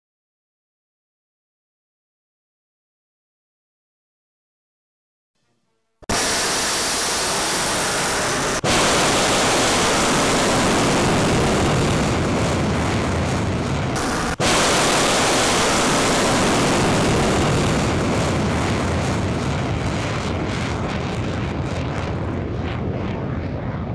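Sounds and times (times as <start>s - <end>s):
rocket motor roaring: 6.1s - 23.9s.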